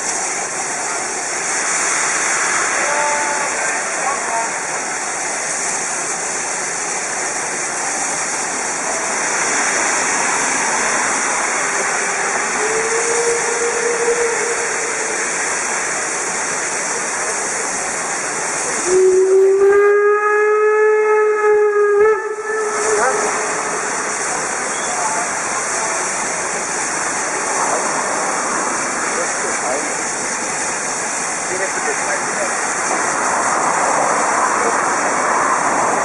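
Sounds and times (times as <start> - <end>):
steam hissing: 0.0 - 36.0
steam whistle blast: 2.8 - 3.6, 12.0 - 15.7, 18.8 - 25.1.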